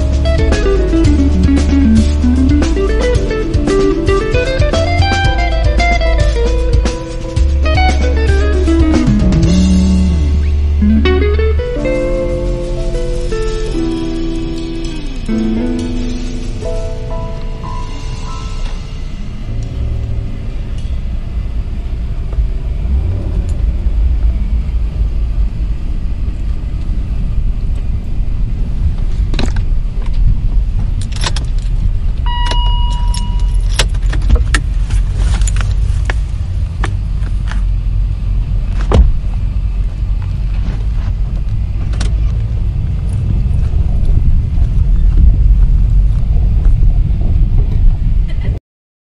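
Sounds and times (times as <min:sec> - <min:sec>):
vehicle engine and tyre rumble: 0:00.0 - 0:48.6
short beep: 0:32.3 - 0:33.7.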